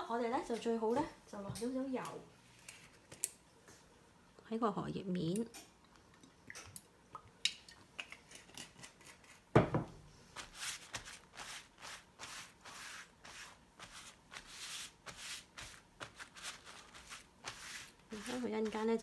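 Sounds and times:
palms rubbing a leaf: 10.4 - 19.0.

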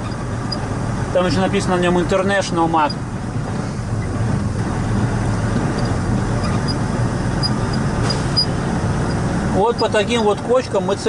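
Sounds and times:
diesel engine drone: 0.0 - 11.0
road and cab noise: 0.0 - 11.0.

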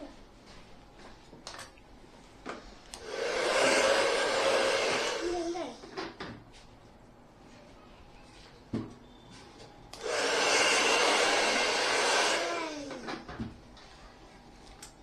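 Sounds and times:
hair dryer blowing: 2.9 - 5.6, 10.0 - 13.2.

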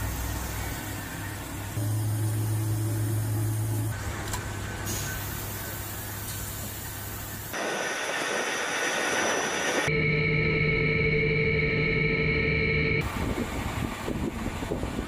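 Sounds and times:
deep machinery hum: 0.0 - 15.0
thin high whine: 7.6 - 13.0.

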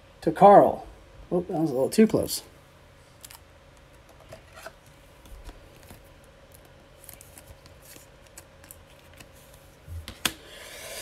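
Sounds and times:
cards flipping and scraping: 3.2 - 11.0.

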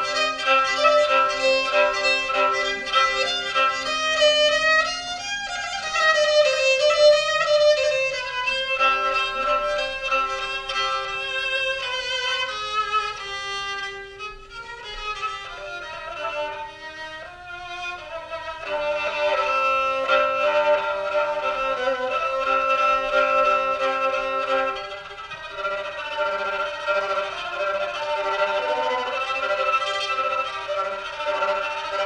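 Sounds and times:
bowed fiddle playing slow melody: 0.0 - 32.0.

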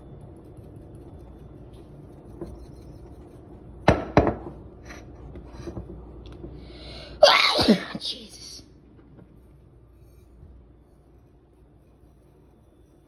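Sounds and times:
knocks on kitchen counter: 3.9 - 4.5.

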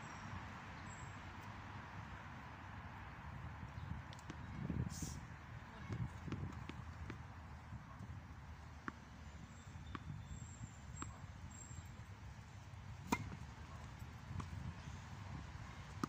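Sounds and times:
tennis ball bouncing on hard court: 5.8 - 7.2, 8.8 - 9.0, 9.6 - 11.2, 13.0 - 15.0
racket striking ball: 13.0 - 13.4.

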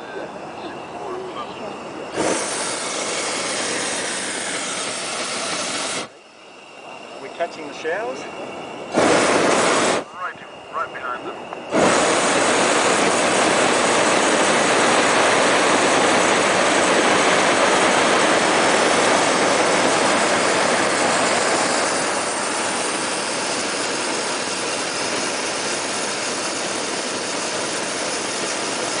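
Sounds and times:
propane burner firing: 1.0 - 10.9, 11.5 - 29.0.

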